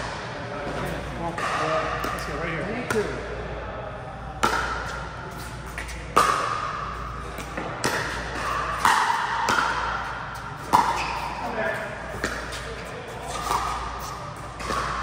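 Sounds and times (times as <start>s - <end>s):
ball bouncing on court: 0.0s - 3.2s, 4.4s - 15.0s
paddles striking ball: 5.7s - 15.0s.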